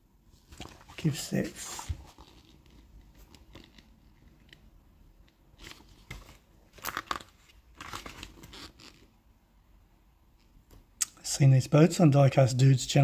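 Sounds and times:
paper pages rustling: 0.4 - 4.3, 5.6 - 9.1.

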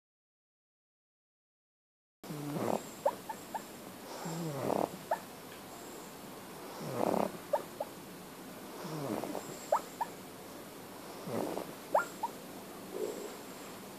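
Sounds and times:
dog snoring: 2.3 - 5.2, 6.6 - 7.7, 8.8 - 10.0, 11.0 - 13.4.

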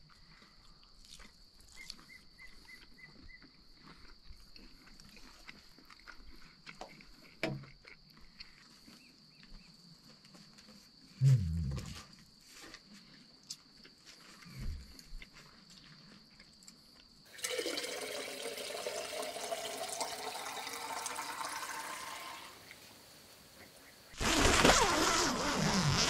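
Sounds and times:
crickets chirping: 0.0 - 17.4
low guttural sound: 11.2 - 12.1.

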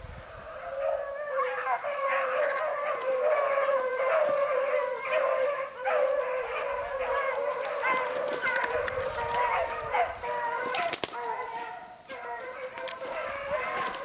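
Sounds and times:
beagles baying: 0.3 - 14.0.

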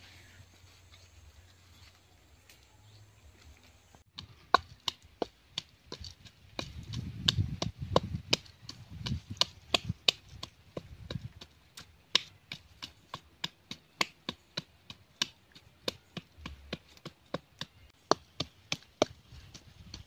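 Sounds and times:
wooden pestle pounding in bowl: 4.1 - 20.0.

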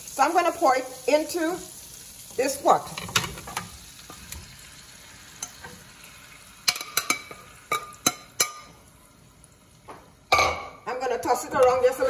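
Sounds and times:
chicken sizzling in a skillet: 0.0 - 10.3
metal spoon clinking on pan: 6.7 - 8.7.

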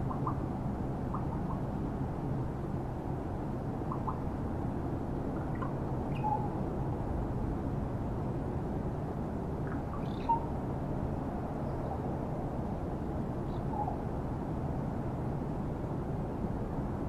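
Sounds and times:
low background rumble: 0.0 - 17.0
raven calls: 3.9 - 4.2.

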